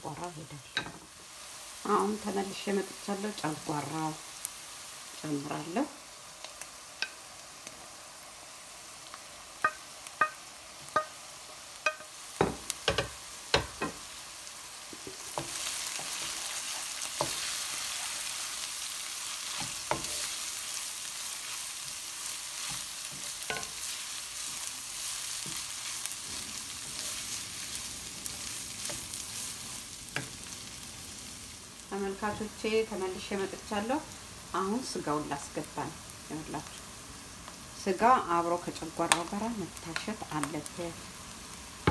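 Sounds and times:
food sizzling in a pan: 0.0 - 41.9
spoon scraping a pan: 22.5 - 30.5.

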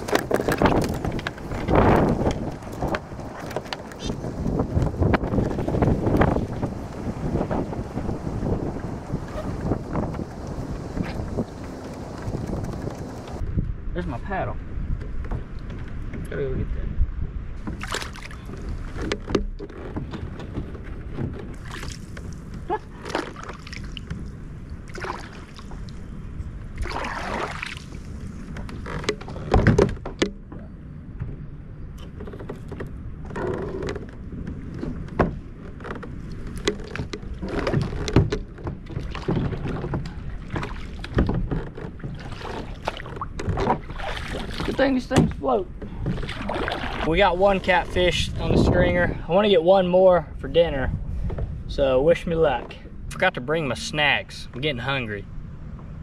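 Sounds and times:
water splashing and sloshing: 0.0 - 13.7, 17.2 - 49.1
thumps against kayak hull: 28.5 - 31.4, 32.0 - 47.1.

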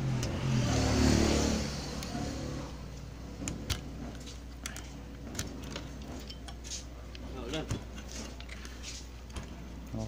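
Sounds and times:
vehicle passing by: 0.0 - 2.9.

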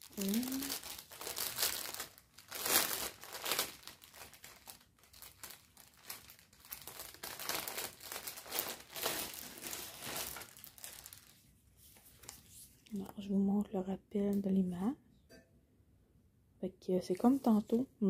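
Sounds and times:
plastic bag crinkling: 0.0 - 12.7.

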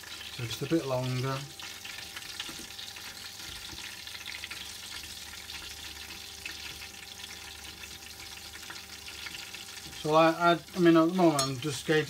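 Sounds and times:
prawns deep-frying in oil: 0.0 - 12.0.

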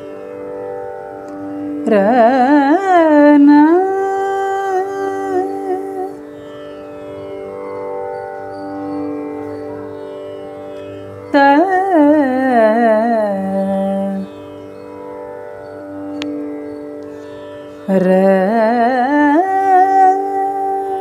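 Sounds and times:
person singing: 1.9 - 6.3, 17.9 - 21.0.

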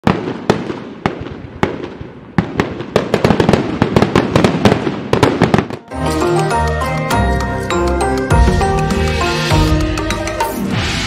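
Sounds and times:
fireworks bangs and crackle: 0.0 - 6.2.

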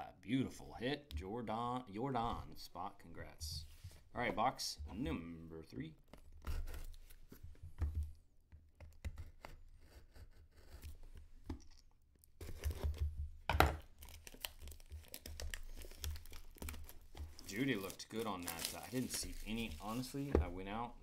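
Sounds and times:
plastic wrap tearing and crinkling: 13.8 - 20.3.

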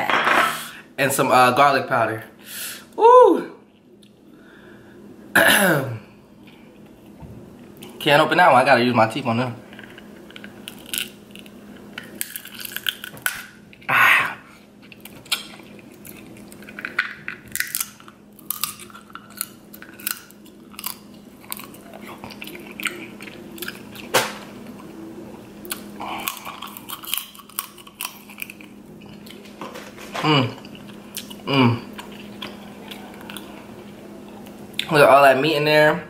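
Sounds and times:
teeth cracking crab shell: 9.8 - 13.6, 14.9 - 24.4, 25.6 - 28.8
wet chewing: 14.8 - 29.6, 30.6 - 34.9.

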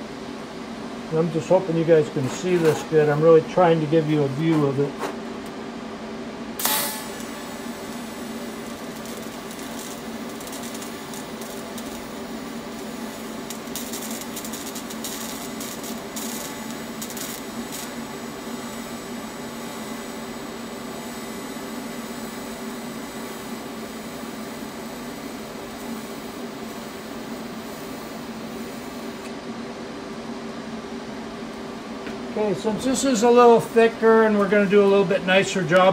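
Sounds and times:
welding arc buzzing hiss: 0.0 - 35.9
welding machine hum: 1.1 - 35.9
welding arc striking crack: 6.6 - 29.3.

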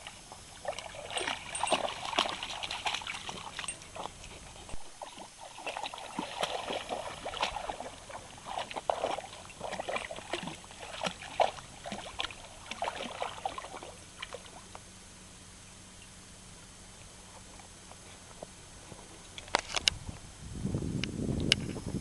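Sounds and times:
puppy splashing in water: 0.0 - 14.7.

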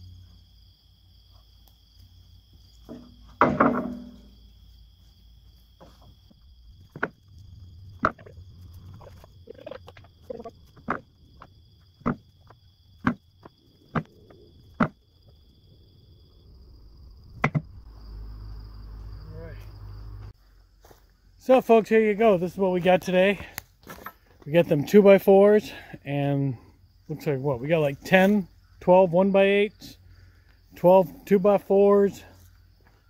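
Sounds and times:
insects trilling: 0.0 - 33.0
sharp wooden knocks: 2.9 - 4.3, 6.9 - 7.2, 8.0 - 8.3, 10.8 - 14.1, 14.8 - 15.0, 17.4 - 17.7
wooden boards clattering: 2.9 - 4.4, 6.8 - 7.2, 8.0 - 14.1.

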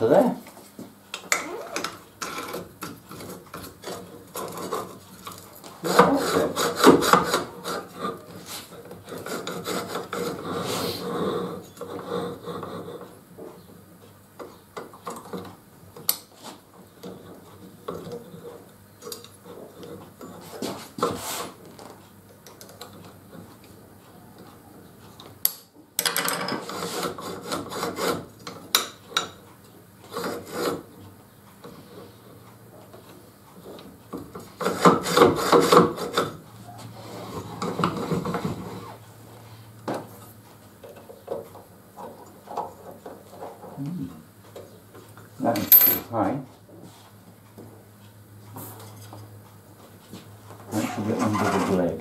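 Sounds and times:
metal rubbing and scraping: 50.7 - 52.0.

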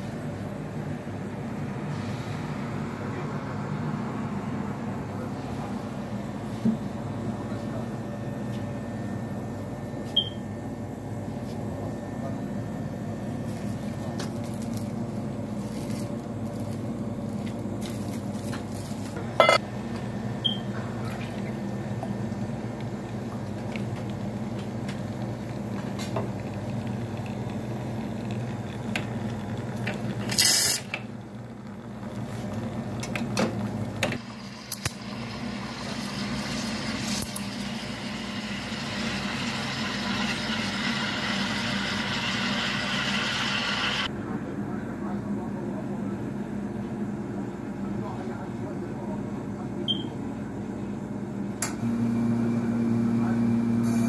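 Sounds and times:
espresso machine humming: 2.5 - 44.1, 51.8 - 54.0.

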